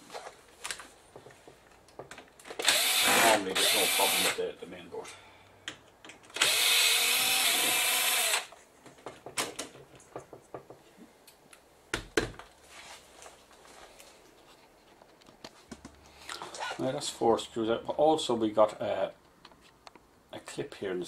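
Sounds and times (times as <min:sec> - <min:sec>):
electric screwdriver running: 0:02.6 - 0:04.4, 0:06.4 - 0:08.5.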